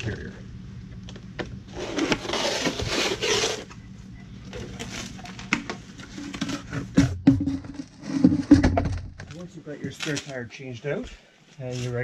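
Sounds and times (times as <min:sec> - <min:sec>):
tire rubbing scrape: 0:01.6 - 0:03.8, 0:04.4 - 0:08.8
knocks and clunks of rubber and plastic: 0:04.4 - 0:10.0.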